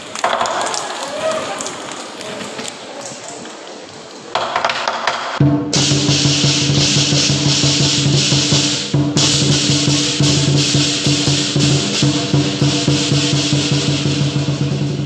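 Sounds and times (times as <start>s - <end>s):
cymbals crashing: 5.4s - 15.0s
drum beaten rapidly: 5.4s - 15.0s.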